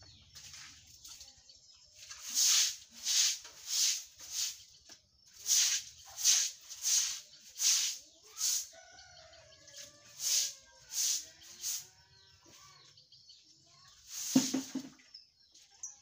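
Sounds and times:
chicken calling: 0:08.2 - 0:12.8.

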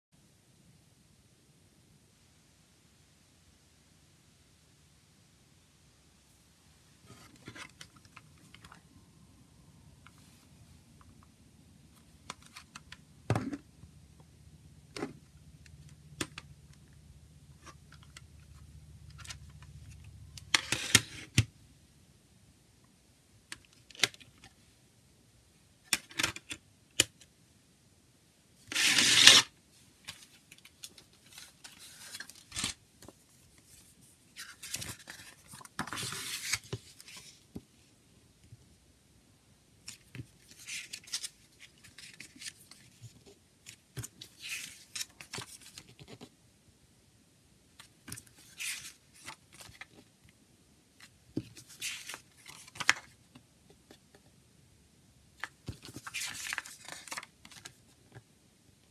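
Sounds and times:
paper pages rustling: 0:30.1 - 0:37.4, 0:39.8 - 0:46.3, 0:51.4 - 0:53.2, 0:55.4 - 0:58.2.

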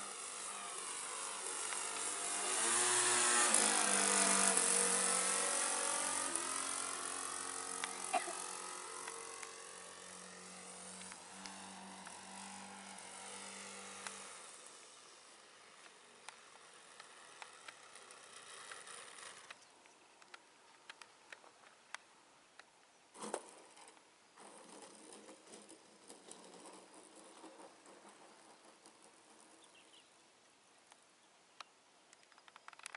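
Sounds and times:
faint hiss: 0:00.0 - 0:32.6
faint model airplane engine: 0:00.0 - 0:32.9
scattered clicks: 0:01.6 - 0:02.2, 0:03.5 - 0:09.7, 0:15.8 - 0:22.7, 0:31.6 - 0:32.9.

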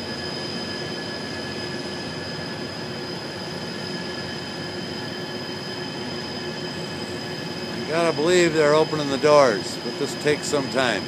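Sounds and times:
diesel engines droning: 0:04.3 - 0:11.0.

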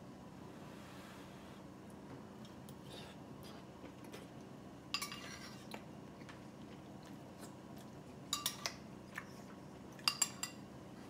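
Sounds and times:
metal spoon clinking on bowl: 0:08.3 - 0:08.8, 0:10.0 - 0:10.6.

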